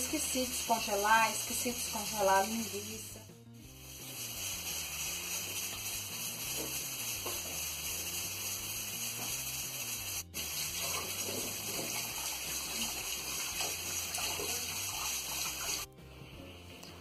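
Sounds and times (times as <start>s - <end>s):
faucet running into sink: 4.0s - 8.5s, 9.1s - 15.9s.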